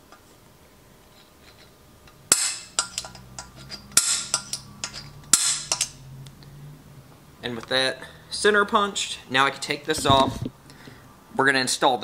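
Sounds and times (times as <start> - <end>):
center punch metallic strikes: 2.3 - 3.2, 3.9 - 6.0
light metal taps and clicks: 2.8 - 5.9.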